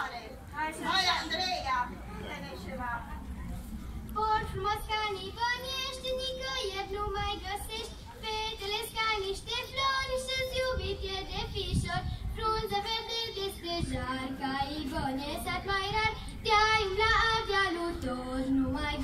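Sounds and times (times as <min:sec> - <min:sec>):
women singing together: 0:04.2 - 0:19.0.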